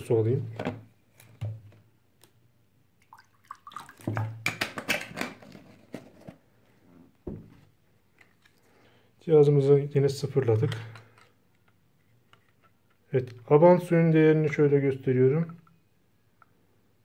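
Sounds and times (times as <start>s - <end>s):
water pouring into a glass: 3.0s - 4.3s
dull thump: 7.2s - 7.6s.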